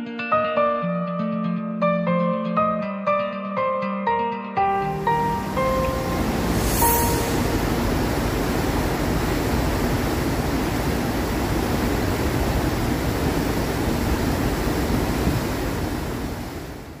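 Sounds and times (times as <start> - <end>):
foaming water rushing: 5.0 - 17.0.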